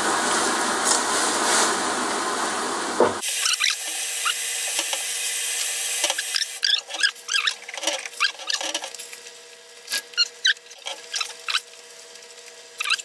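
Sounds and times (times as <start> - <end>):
vegetables squeaking: 3.4 - 4.4, 6.1 - 8.9, 9.9 - 11.7, 12.8 - 13.0.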